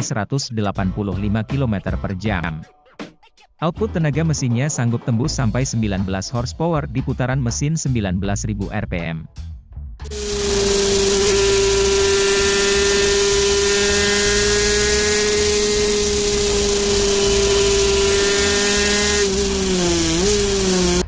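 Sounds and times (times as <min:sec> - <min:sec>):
motorcycle engine high revs: 0:10.0 - 0:21.0.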